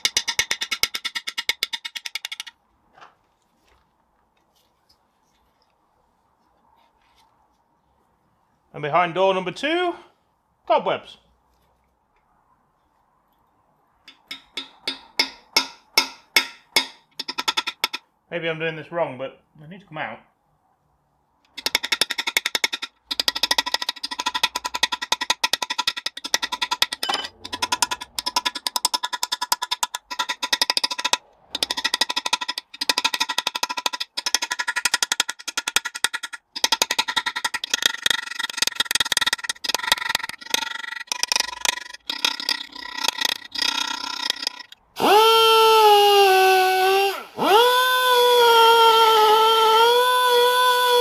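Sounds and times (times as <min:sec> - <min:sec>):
air chisel hammering metal: 0:14.1 - 0:18.0
die grinder high whine: 0:42.1 - 0:51.0.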